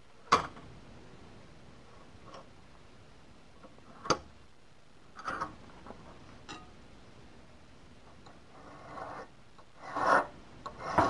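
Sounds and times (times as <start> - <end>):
file scraping metal: 8.5 - 11.0.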